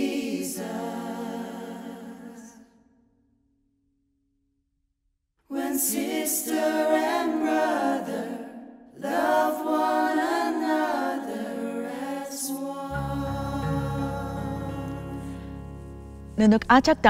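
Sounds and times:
mixed voices singing a cappella: 0:00.0 - 0:02.8, 0:05.5 - 0:15.9.

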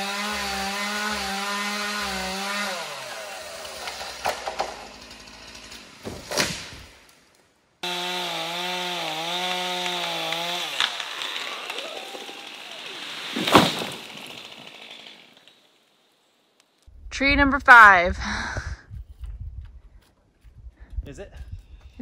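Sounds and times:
chainsaw cutting at full throttle: 0:00.0 - 0:06.5, 0:07.8 - 0:15.6
tree trunk cracking: 0:03.6 - 0:07.4, 0:09.1 - 0:15.6
tree crashing to the ground: 0:03.8 - 0:07.1, 0:09.4 - 0:15.7.

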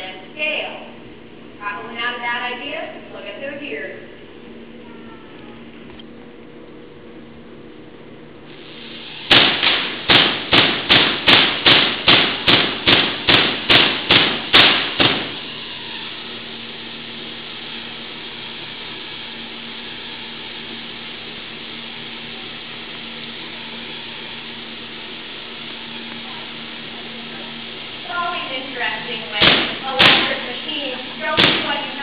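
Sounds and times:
steady hiss with faint hum: 0:00.0 - 0:32.0
electric spark cracks: 0:08.5 - 0:32.0.

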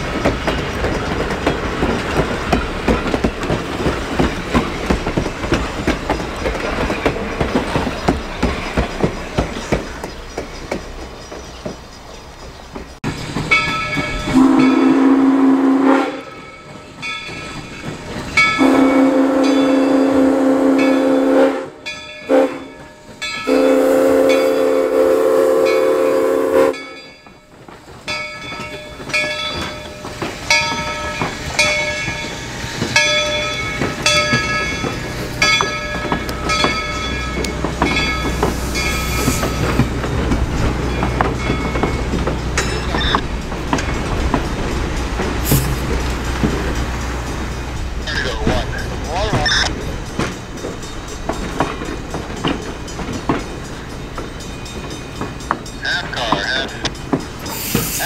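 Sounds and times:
train clattering past: 0:00.0 - 0:58.0
locomotive bell ringing: 0:13.4 - 0:15.6, 0:16.2 - 0:21.1, 0:21.8 - 0:24.9, 0:25.6 - 0:58.0
steam locomotive whistle: 0:14.3 - 0:16.4, 0:18.6 - 0:22.8, 0:23.4 - 0:27.0.

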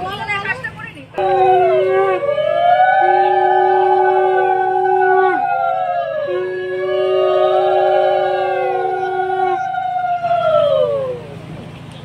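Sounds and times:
conch shell blown: 0:01.2 - 0:05.4, 0:06.0 - 0:09.7
women ululating: 0:01.2 - 0:11.4.

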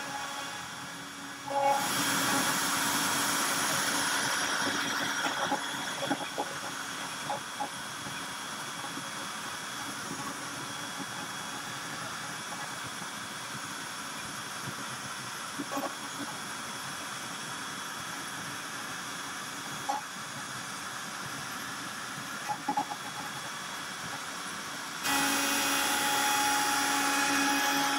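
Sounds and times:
router carving wood: 0:00.0 - 0:13.0, 0:24.9 - 0:27.9.

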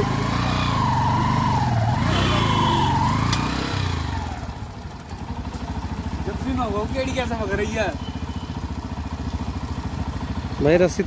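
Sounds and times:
motorcycle engine idling: 0:01.8 - 0:11.0.

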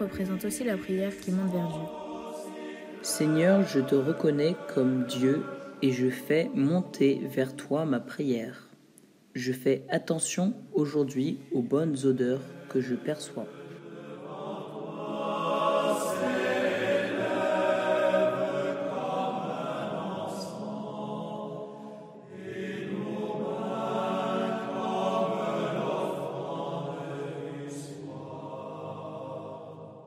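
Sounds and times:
slow meditative music: 0:00.0 - 0:08.4.

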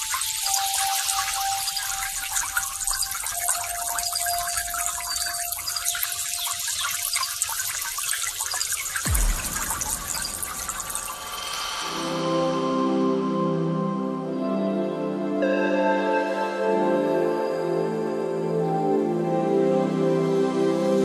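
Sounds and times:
water rushing and splashing: 0:00.0 - 0:12.8
low thump: 0:09.1 - 0:12.5.

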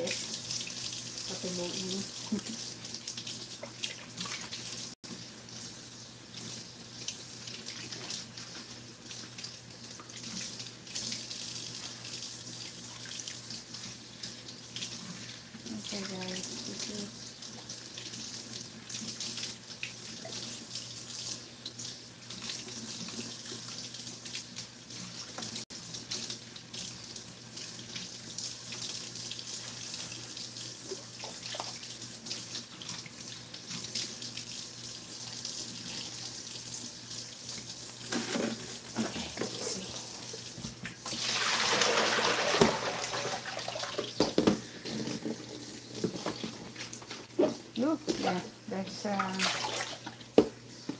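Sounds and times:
faucet running into sink: 0:35.6 - 0:48.5, 0:49.2 - 0:50.5.

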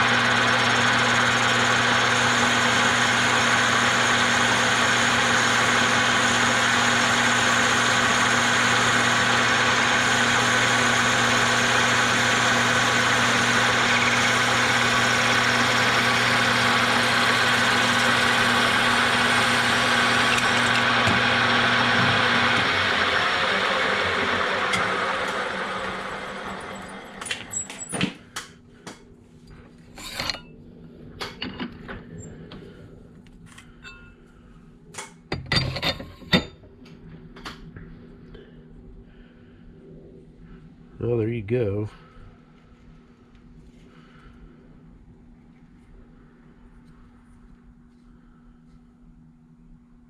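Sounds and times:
lathe humming: 0:00.0 - 0:27.9, 0:29.9 - 0:30.4
tool cutting plastic: 0:11.3 - 0:21.3.

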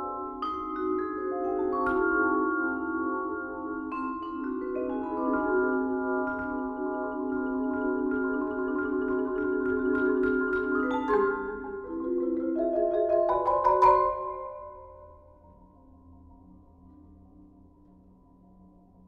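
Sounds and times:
vibraphone and marimbas chords: 0:00.0 - 0:15.2.

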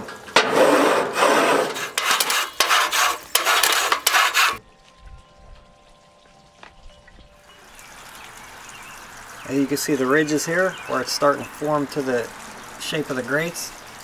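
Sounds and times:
scraper rasping on grill grates: 0:00.4 - 0:04.6.

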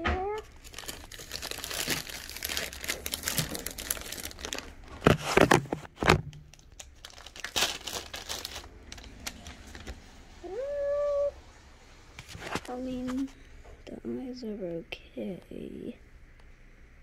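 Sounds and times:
plastic wrapper crinkling: 0:00.4 - 0:10.0.

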